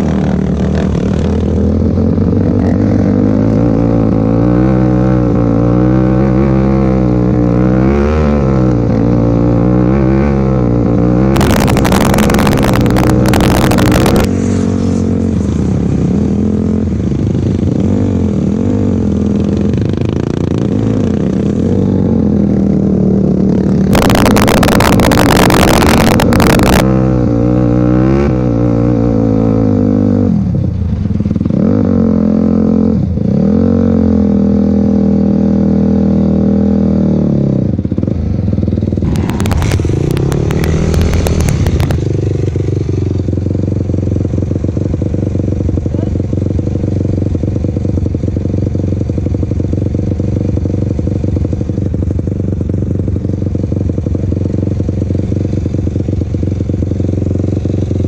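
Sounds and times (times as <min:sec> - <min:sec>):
quad engine revving: 0:00.0 - 0:30.4, 0:38.9 - 0:43.2
loud rushing noise: 0:38.9 - 0:43.0.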